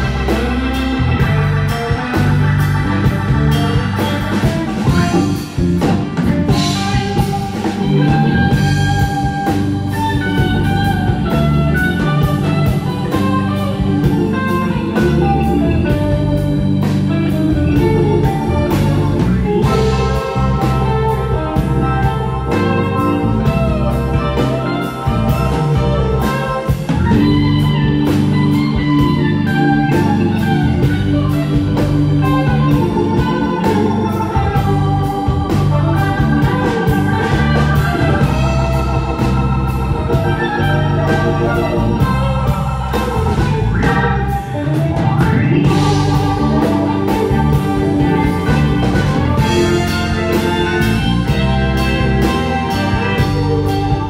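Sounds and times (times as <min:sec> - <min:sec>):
live band playing instrumental: 0:00.0 - 0:54.0.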